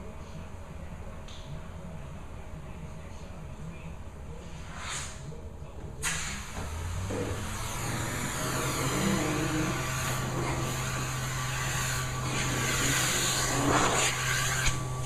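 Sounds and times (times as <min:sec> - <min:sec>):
air rushing through hose: 0:04.6 - 0:05.3, 0:06.0 - 0:15.0
vacuum motor humming: 0:06.5 - 0:15.0.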